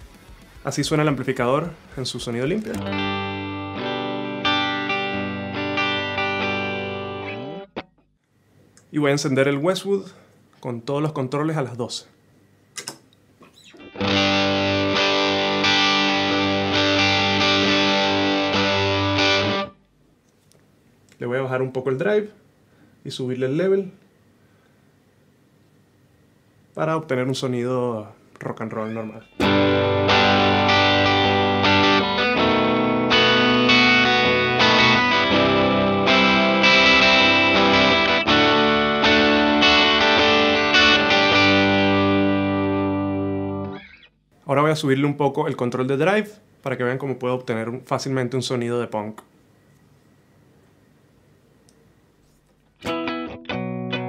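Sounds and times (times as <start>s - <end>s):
electric guitar strummed chords: 0.0s - 8.0s, 13.8s - 19.8s, 29.0s - 44.1s, 52.8s - 54.0s.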